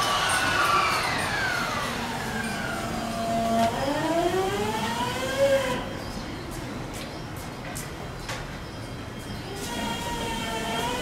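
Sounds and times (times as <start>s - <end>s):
electric train inverter whining: 0.0s - 6.0s, 9.5s - 11.0s.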